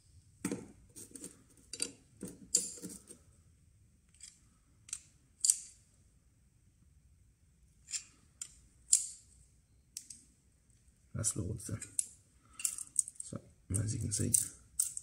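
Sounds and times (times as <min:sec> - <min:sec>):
spanners clinking on metal fitting: 0:12.5 - 0:13.2.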